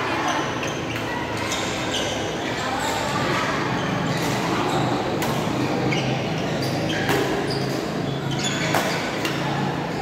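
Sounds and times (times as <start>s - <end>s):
sports hall background noise: 0.0s - 10.0s
racket hitting shuttlecock: 5.2s - 5.7s, 6.9s - 8.0s, 8.6s - 9.4s.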